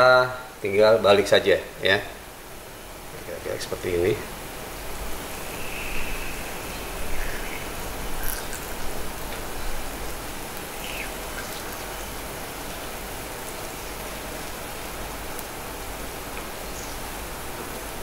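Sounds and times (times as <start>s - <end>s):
batter sizzling in a pan: 5.2s - 13.1s.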